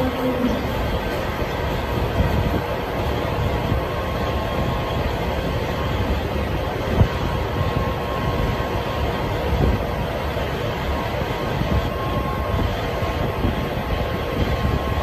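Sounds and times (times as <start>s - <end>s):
low mechanical drone: 0.0s - 15.0s.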